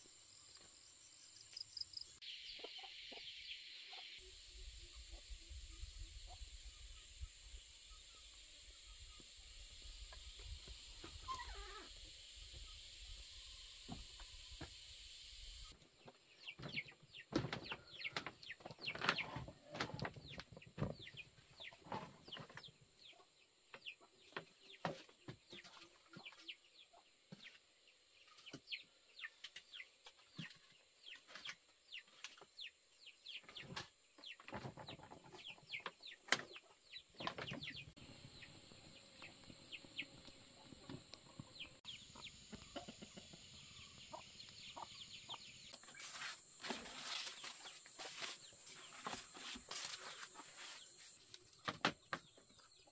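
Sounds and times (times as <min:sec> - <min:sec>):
chickens clucking: 0:02.5 - 0:04.2, 0:15.8 - 0:27.6, 0:33.4 - 0:52.9.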